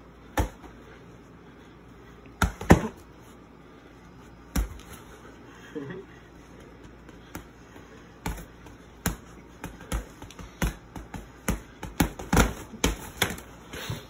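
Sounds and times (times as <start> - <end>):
boxing gloves punching: 2.4 - 3.0, 4.5 - 5.0, 6.6 - 13.5.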